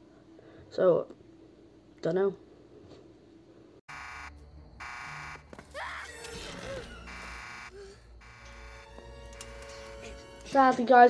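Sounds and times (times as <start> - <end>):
electronic warning alarm buzzing: 3.9 - 5.6, 7.0 - 10.0.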